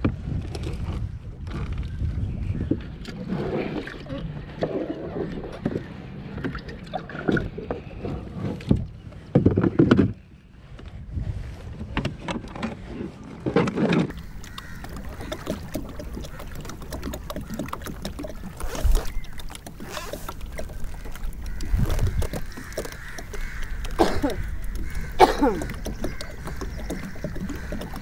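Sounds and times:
water lapping against kayak hull: 0.0 - 10.8, 11.4 - 28.0.

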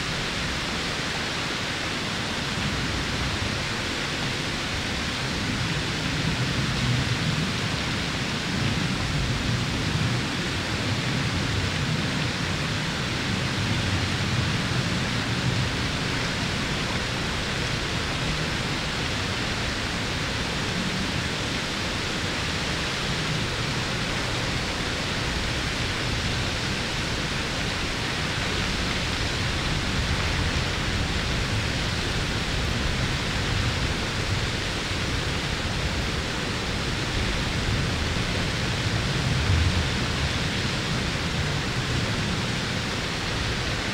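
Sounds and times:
waterfall rushing: 9.7 - 43.9.

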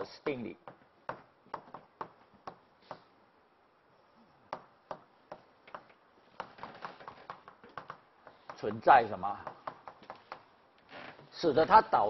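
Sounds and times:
chalk tapping on blackboard: 0.2 - 3.1, 4.5 - 8.8, 9.4 - 10.6.

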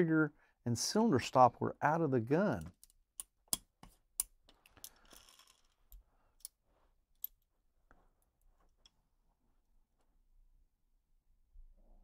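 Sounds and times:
hands rustling parts: 2.6 - 9.6.

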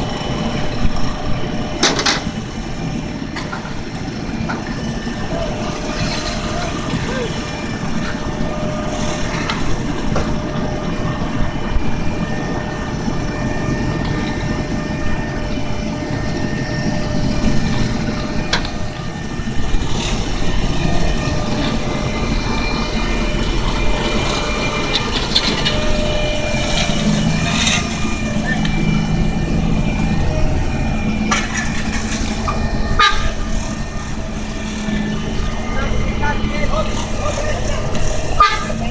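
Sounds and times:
asphalt paver running: 0.0 - 38.9.

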